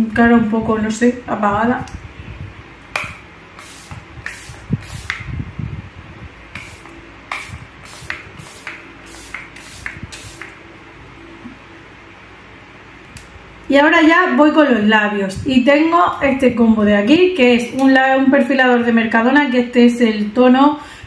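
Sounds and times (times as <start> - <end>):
spray bottle hissing puffs: 3.5 - 5.3, 6.5 - 10.6.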